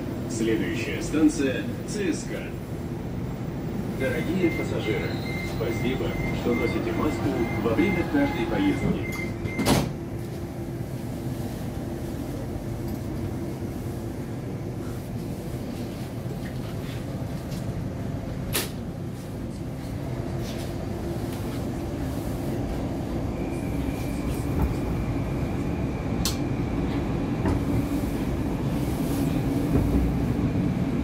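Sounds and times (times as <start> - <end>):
metro train rumble and hum: 0.0 - 31.0.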